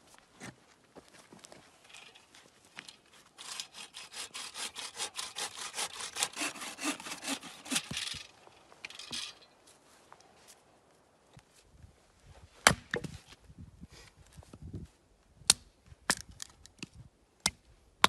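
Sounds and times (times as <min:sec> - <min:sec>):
bow saw cutting log: 0:03.4 - 0:08.0.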